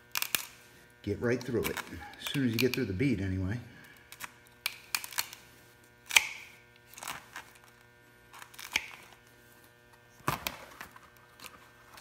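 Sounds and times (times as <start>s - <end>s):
tin snips cutting rubber tire: 1.3s - 2.9s, 4.0s - 7.3s, 8.3s - 9.2s.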